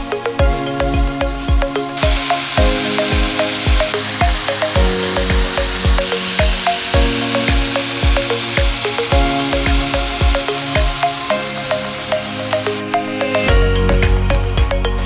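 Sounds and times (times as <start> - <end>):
background music with steady beat: 0.0 - 15.0
meat sizzling in skillet: 2.0 - 12.8.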